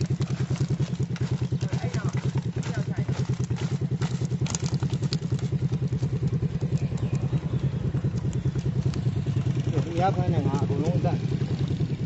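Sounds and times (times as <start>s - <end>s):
fish clattering into basket: 0.0s - 7.2s
small engine chugging: 0.0s - 12.0s.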